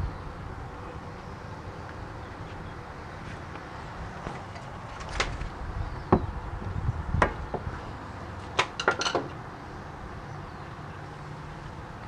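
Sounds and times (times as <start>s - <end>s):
faint steady background noise: 0.0s - 12.0s.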